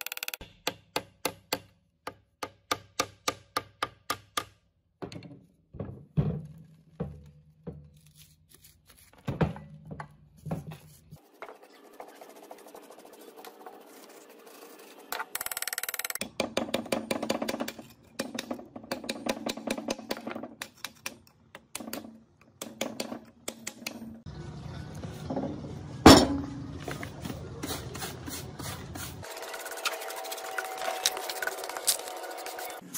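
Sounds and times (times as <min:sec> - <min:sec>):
metal scraper rasping rust: 0:16.2 - 0:24.0.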